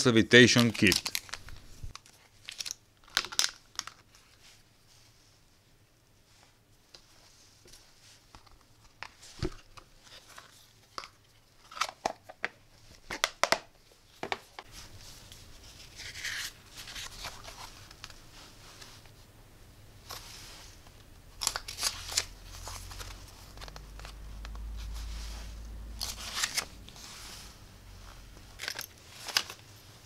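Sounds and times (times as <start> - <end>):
paper rustling: 0.4 - 4.5, 14.6 - 19.2, 20.0 - 30.0
plastic cases clicking and knocking: 11.8 - 14.6.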